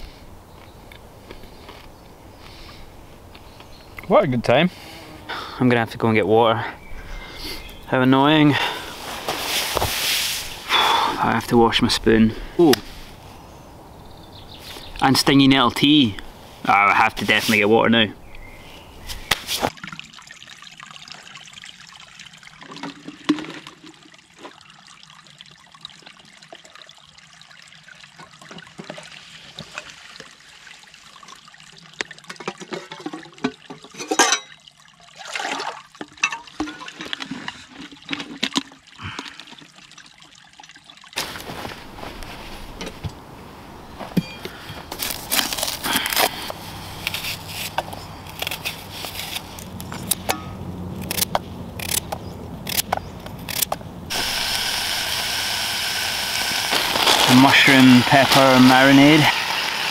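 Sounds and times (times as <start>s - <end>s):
stream trickling: 0.0s - 59.9s
water splashing and pouring: 8.6s - 10.9s, 19.4s - 42.9s, 54.1s - 59.9s
rustling and handling noise: 8.8s - 10.7s, 41.2s - 50.4s, 56.5s - 58.5s.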